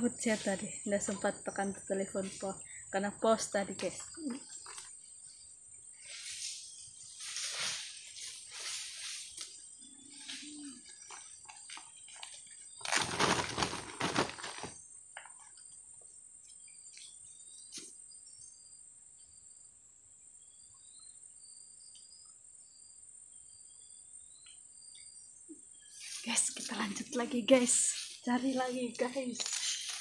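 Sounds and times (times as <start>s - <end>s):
high insect drone: 0.0s - 30.0s
plastic bag rustling: 12.7s - 14.8s.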